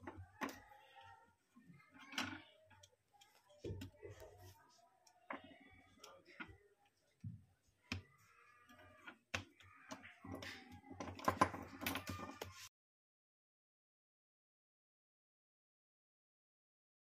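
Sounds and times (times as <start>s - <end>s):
small plastic clicks and taps: 0.0s - 12.7s.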